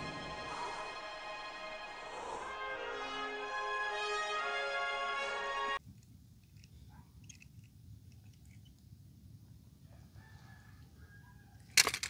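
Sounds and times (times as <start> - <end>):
rooster crowing faintly: 9.8 - 11.8
toy cars clattering in plastic basket: 11.7 - 12.0.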